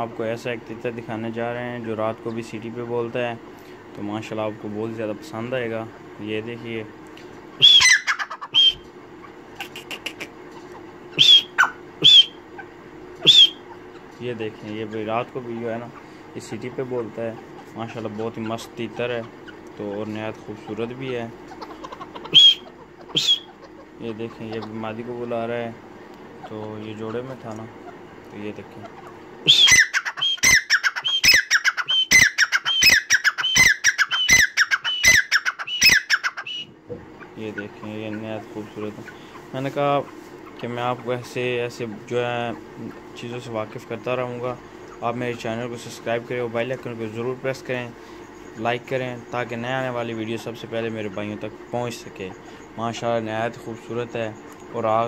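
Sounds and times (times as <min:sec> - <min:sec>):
sharp ticking bird notes: 0:07.5 - 0:16.2, 0:16.8 - 0:25.3, 0:26.1 - 0:38.2
francolin calling: 0:07.5 - 0:55.0
shrill bird call notes: 0:07.6 - 0:08.9, 0:11.1 - 0:13.8, 0:22.2 - 0:23.7, 0:29.4 - 0:36.7.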